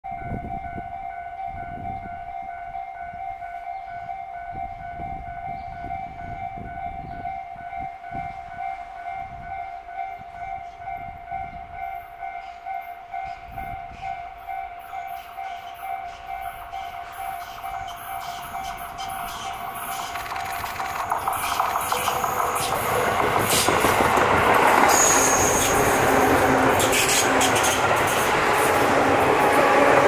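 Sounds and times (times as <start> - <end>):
level-crossing alarm ringing: 0.1 - 30.0
train wheels ticking: 11.7 - 30.0.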